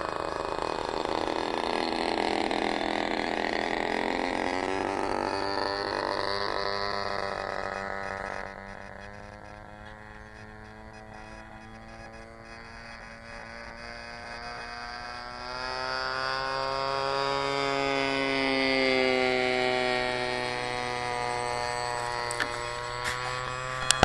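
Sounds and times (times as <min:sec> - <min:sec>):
model plane engine buzzing past: 0:00.0 - 0:24.0
steady low hum: 0:00.0 - 0:24.0
sharp clicks: 0:22.0 - 0:24.0.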